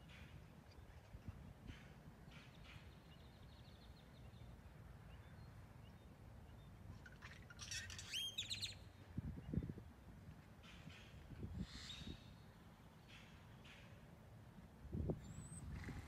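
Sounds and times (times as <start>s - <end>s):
songbird chirping: 2.2s - 14.2s.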